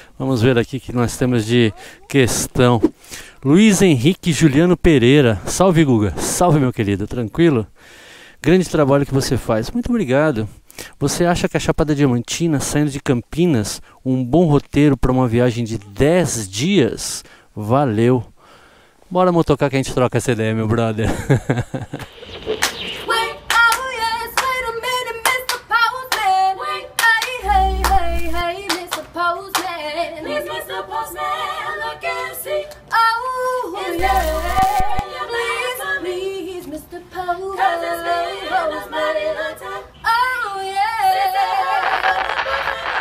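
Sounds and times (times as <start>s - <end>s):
hand claps: 23.5s - 24.6s, 25.2s - 26.2s, 28.7s - 29.7s
deep low hits: 27.4s - 28.4s
voices singing a jingle: 37.3s - 39.9s.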